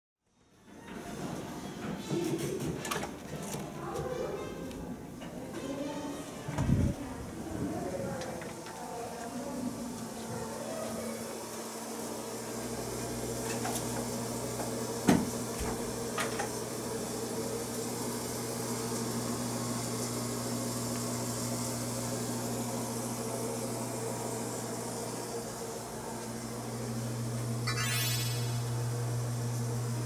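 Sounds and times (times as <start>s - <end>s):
ventilation hum: 2.0s - 30.0s.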